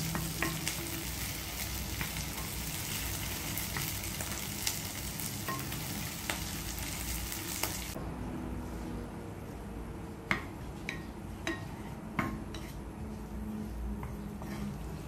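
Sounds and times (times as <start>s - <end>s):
onions sizzling in hot oil: 0.0s - 8.0s
spatula knocking against pan: 10.3s - 12.7s.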